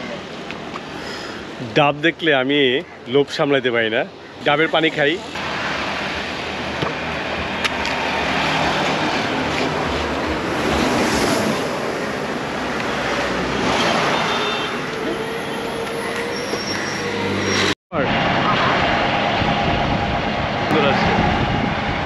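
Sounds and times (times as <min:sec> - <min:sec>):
road traffic rushing: 0:00.0 - 0:22.0.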